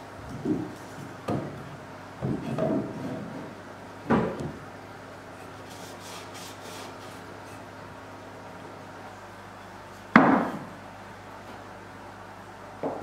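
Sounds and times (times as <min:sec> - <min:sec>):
wood knocking on workbench: 0:10.2 - 0:10.6.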